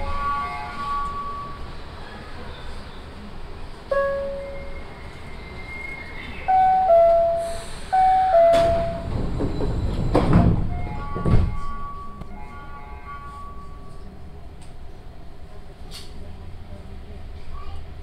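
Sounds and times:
monorail car rumbling: 0.0s - 18.0s
two-note descending chime: 6.5s - 9.0s.

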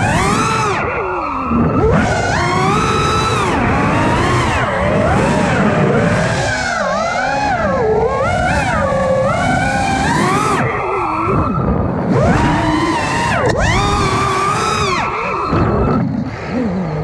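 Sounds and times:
drone motors whining: 0.0s - 17.0s.

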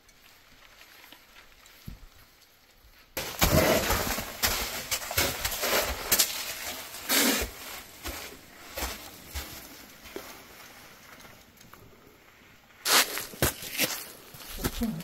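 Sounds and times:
scraping against rock: 3.2s - 9.6s
clothing rubbing against rock: 12.8s - 15.0s
feet on sand: 12.8s - 15.0s.

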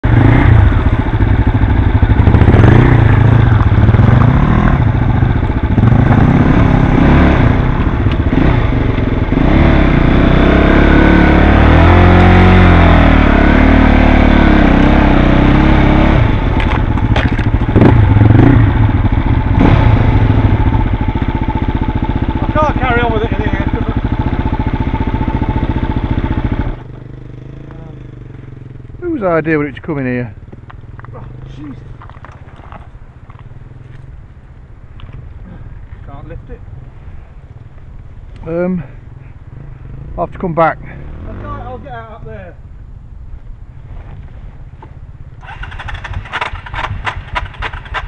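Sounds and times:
motorcycle engine revving: 0.0s - 34.3s, 38.4s - 42.5s, 43.9s - 48.0s
sharp knocks and clatter: 16.6s - 17.8s.

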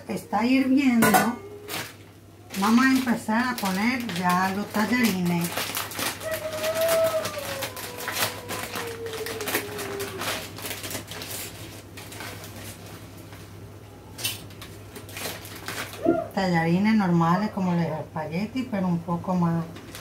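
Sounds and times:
plastic packet crinkling: 1.6s - 13.4s, 14.2s - 16.2s, 19.7s - 20.0s.

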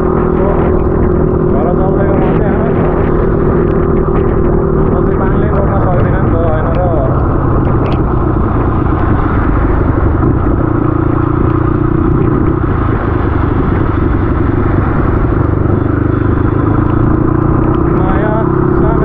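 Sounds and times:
dirt bike engine running: 0.0s - 19.0s
road and wind noise: 0.0s - 19.0s.

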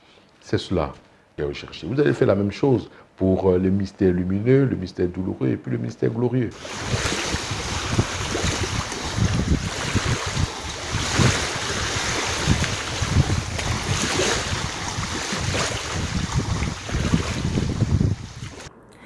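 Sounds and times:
small waves breaking and lapping: 6.6s - 18.7s
wind gusting against microphone: 6.6s - 18.7s.

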